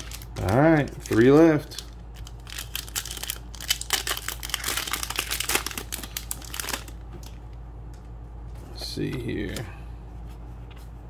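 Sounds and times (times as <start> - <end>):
foil wrapper crinkling: 0.0 - 7.4.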